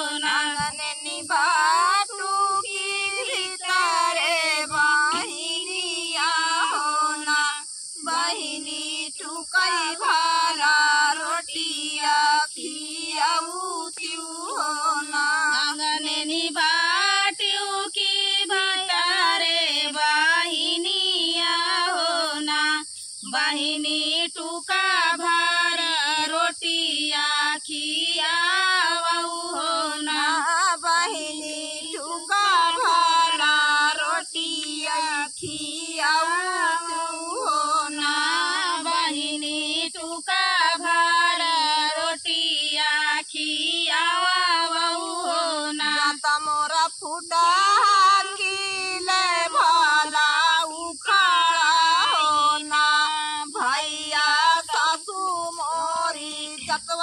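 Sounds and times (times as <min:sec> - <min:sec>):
woman singing unaccompanied: 0:00.0 - 0:57.0.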